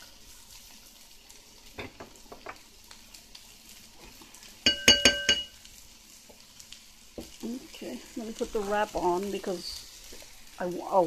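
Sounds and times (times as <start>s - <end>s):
vegetables sizzling in a frying pan: 0.0s - 11.0s
utensil clinking against pan: 4.6s - 5.5s.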